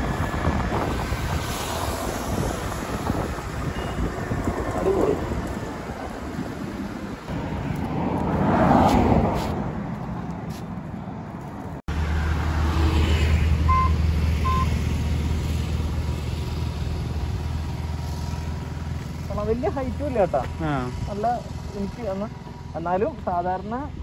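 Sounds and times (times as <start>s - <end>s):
low hum of road traffic: 0.0s - 24.0s
wind and road noise: 0.0s - 24.0s
short high beeps: 13.7s - 14.7s.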